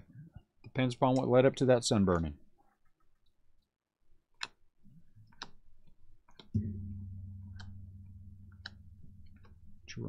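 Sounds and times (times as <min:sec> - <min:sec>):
low steady hum: 0:06.6 - 0:10.0.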